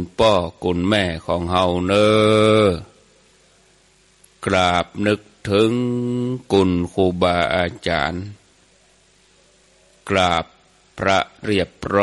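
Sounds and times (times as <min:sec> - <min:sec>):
man chanting: 0:00.0 - 0:03.0, 0:04.4 - 0:08.4, 0:10.0 - 0:12.0.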